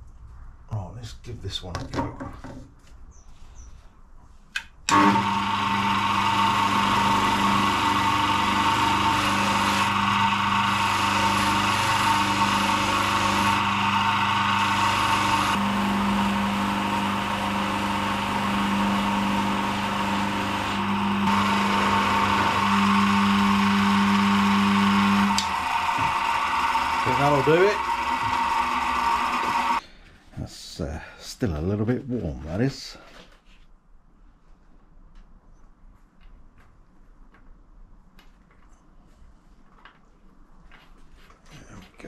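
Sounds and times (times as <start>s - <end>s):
bench polisher humming: 4.9s - 29.8s.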